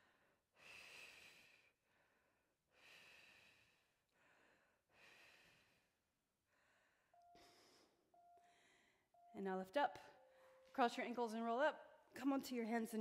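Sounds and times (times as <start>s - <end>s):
woman breathing slowly: 0.0s - 9.3s.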